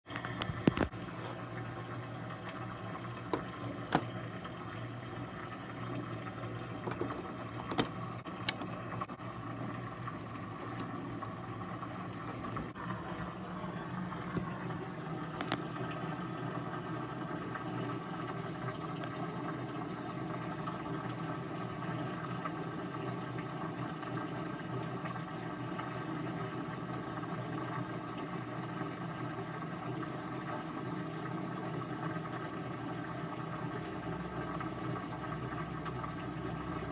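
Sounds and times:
disc loading clicks: 0.1s - 0.9s, 3.2s - 4.2s, 6.8s - 9.1s, 9.9s - 11.1s, 15.3s - 15.7s
disc drive whirring: 0.1s - 36.9s.

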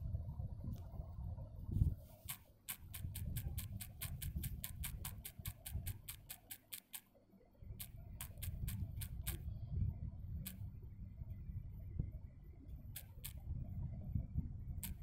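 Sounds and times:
touchscreen keyboard typing clicks: 2.3s - 7.1s, 7.8s - 9.4s, 13.0s - 13.4s.

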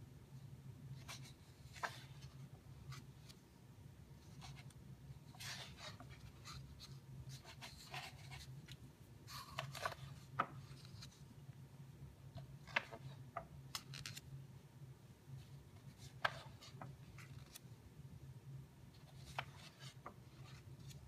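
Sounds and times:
book pages rustling: 1.0s - 3.4s, 4.2s - 11.2s, 12.4s - 14.2s, 15.7s - 17.7s, 19.0s - 21.0s.

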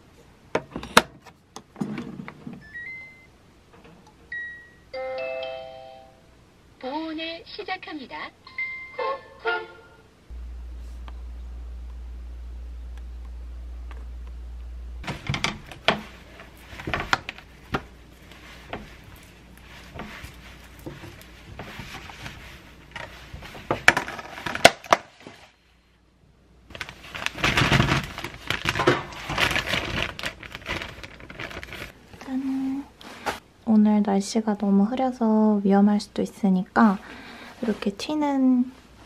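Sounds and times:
low steady hum: 0.0s - 39.0s
plastic zip bag crinkling: 26.7s - 32.0s.

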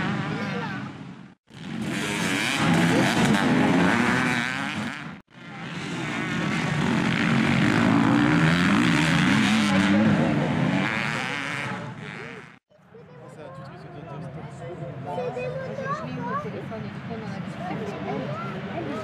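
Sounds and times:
dirt bike engines revving: 0.0s - 12.6s.

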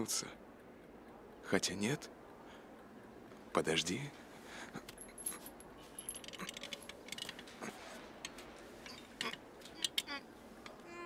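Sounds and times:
metal chain clinking and rattling: 4.9s - 7.6s.

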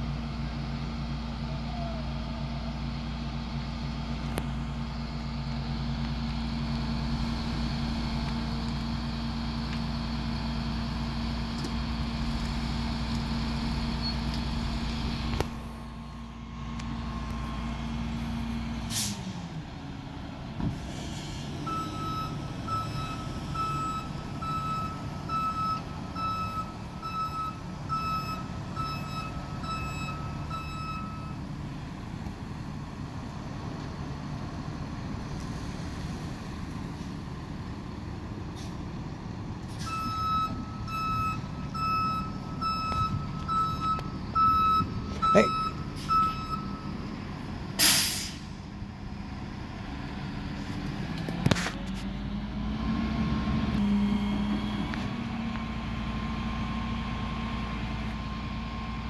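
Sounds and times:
truck engine running: 0.0s - 59.0s
truck reversing alarm beeping: 6.5s - 18.2s, 21.0s - 31.5s, 39.6s - 48.5s, 53.8s - 55.4s
air hiss: 47.8s - 48.6s.

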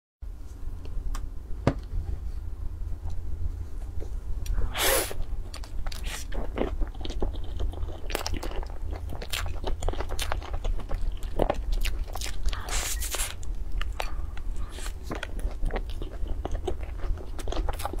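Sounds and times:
low steady hum: 0.2s - 18.0s
biting and chewing pastry: 5.2s - 18.0s.

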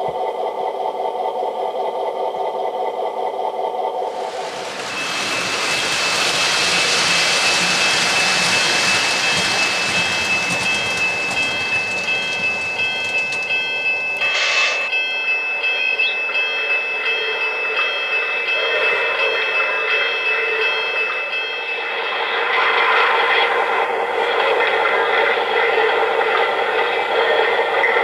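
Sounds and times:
model train rolling hiss: 4.1s - 11.3s, 14.2s - 15.0s
high whining tones: 13.2s - 15.0s
short burst of hiss: 14.2s - 14.9s.

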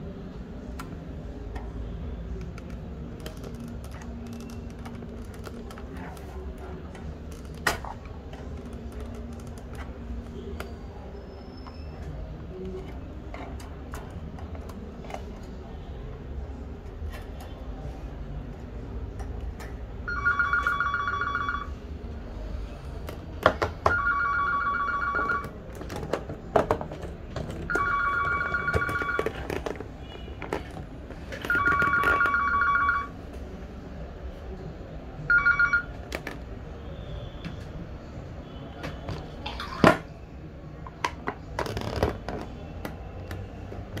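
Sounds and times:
telephone ringing two-tone: 20.0s - 21.8s, 23.9s - 25.6s, 27.7s - 29.4s, 31.4s - 33.1s, 35.3s - 35.9s
plastic parts clicking and knocking: 25.7s - 27.9s, 28.6s - 32.2s.

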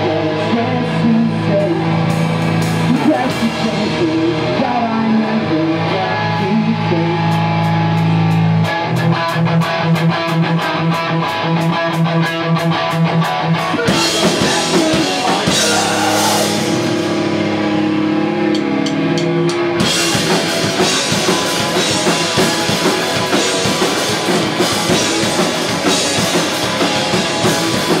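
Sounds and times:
electric guitars sustained chords: 0.0s - 28.0s
drums fast beat: 12.9s - 17.7s, 18.5s - 28.0s.

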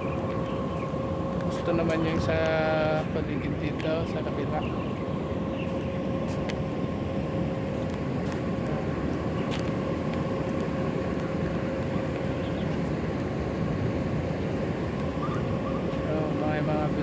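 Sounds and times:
low outdoor rumble: 0.0s - 17.0s
mid-pitched hum: 0.0s - 17.0s.

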